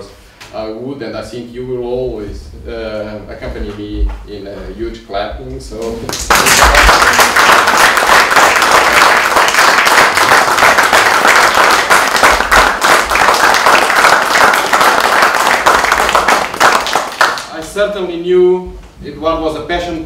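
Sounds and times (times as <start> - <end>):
audience applauding: 6.1 - 17.5.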